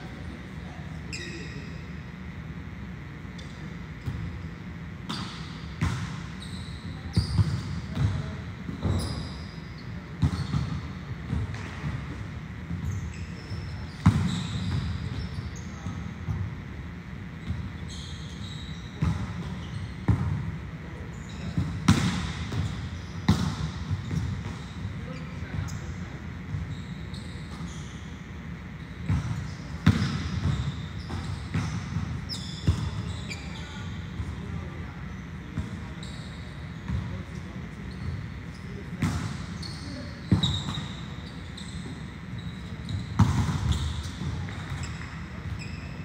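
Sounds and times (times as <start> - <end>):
volleyballs hit and bouncing: 10.0 - 13.4, 19.0 - 25.7, 29.0 - 33.1, 38.7 - 41.2, 42.6 - 46.0.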